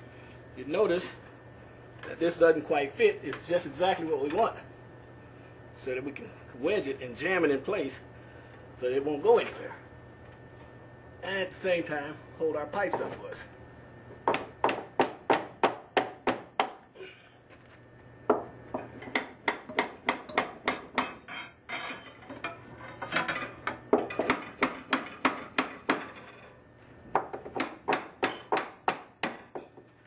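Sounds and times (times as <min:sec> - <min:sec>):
hammer tapping copper pipe brace: 0:18.3 - 0:21.2, 0:27.2 - 0:29.9.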